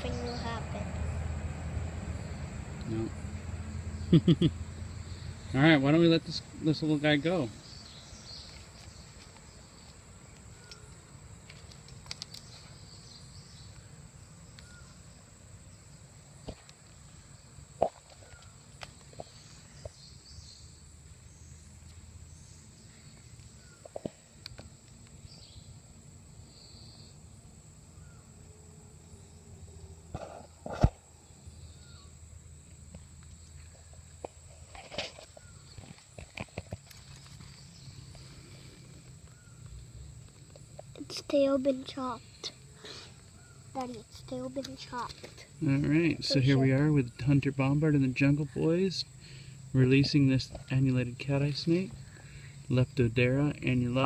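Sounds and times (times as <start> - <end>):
faint chirps: 12.2 - 16.0.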